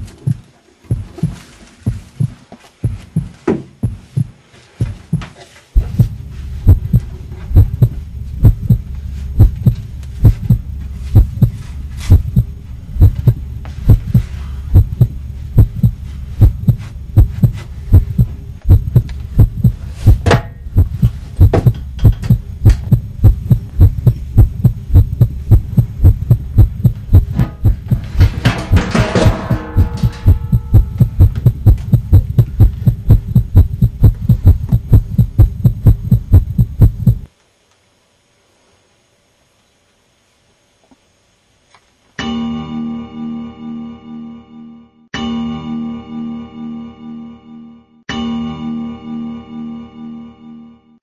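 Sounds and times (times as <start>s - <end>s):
heartbeat thumps: 0.0s - 37.3s
continuous low hum: 0.0s - 47.8s.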